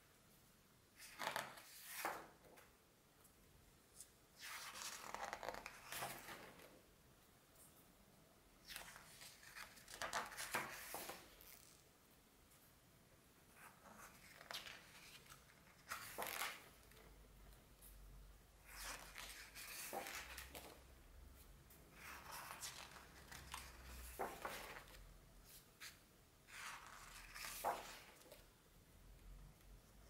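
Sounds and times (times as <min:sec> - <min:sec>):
book pages turning: 0:04.4 - 0:06.7, 0:08.7 - 0:11.8, 0:13.6 - 0:17.1, 0:18.6 - 0:20.8, 0:21.9 - 0:28.4.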